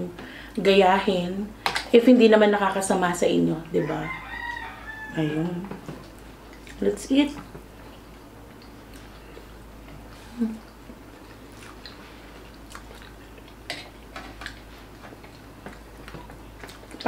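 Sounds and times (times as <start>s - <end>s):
chewing noodles: 7.8s - 17.0s
person humming: 10.2s - 10.6s.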